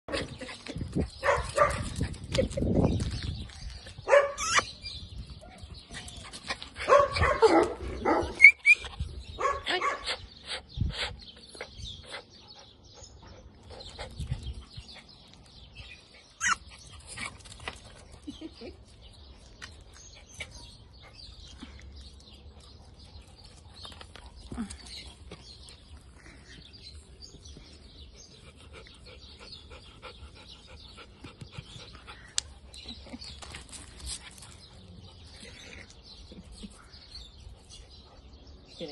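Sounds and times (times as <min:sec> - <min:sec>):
small dog barking and yipping: 0:04.1 - 0:04.7, 0:16.4 - 0:16.6
light clicks and scuffs: 0:32.2 - 0:34.9.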